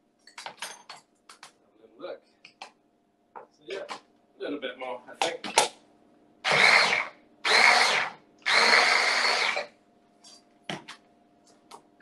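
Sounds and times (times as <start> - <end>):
food processor motor bursts: 6.4 - 9.7.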